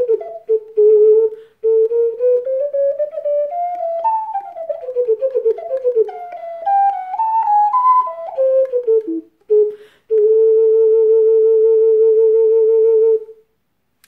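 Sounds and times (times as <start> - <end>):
ocarina playing: 0.0 - 13.4
quick breath: 1.3 - 1.6, 9.7 - 10.1.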